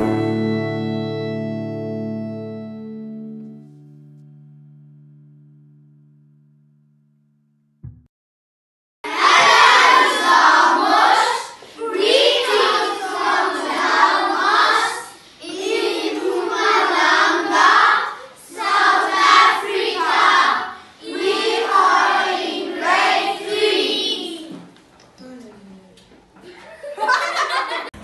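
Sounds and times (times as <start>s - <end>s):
children singing in unison: 9.1s - 24.7s.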